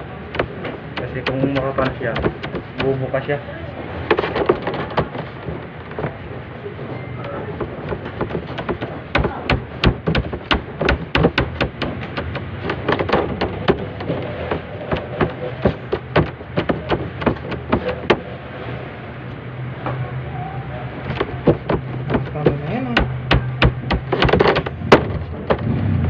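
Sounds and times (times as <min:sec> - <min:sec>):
steady low hum: 0:00.0 - 0:26.0
hands slapping dough on metal: 0:00.3 - 0:03.2, 0:07.6 - 0:18.2, 0:21.1 - 0:25.6.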